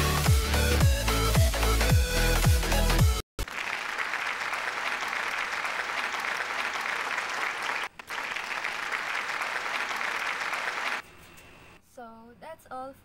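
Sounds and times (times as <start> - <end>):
many hands clapping: 3.4 - 11.0.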